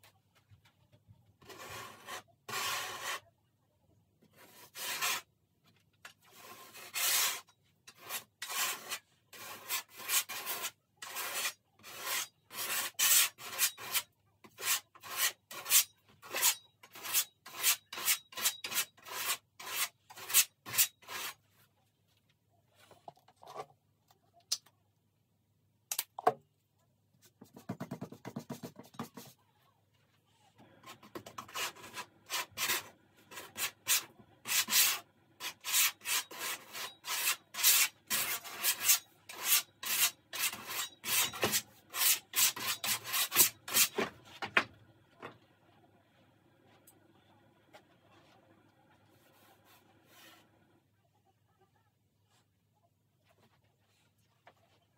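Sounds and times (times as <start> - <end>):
palette knife scraping: 1.4 - 3.3, 4.3 - 5.3, 6.1 - 21.5, 30.8 - 44.1.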